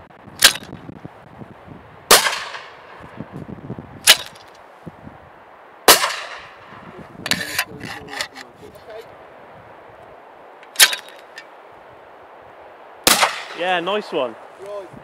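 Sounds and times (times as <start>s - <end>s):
clay pigeon launcher snapping: 0.4s - 0.7s, 4.0s - 4.5s, 10.7s - 11.3s
shotgun shot with echo: 2.1s - 2.8s, 5.9s - 6.6s, 13.0s - 13.6s.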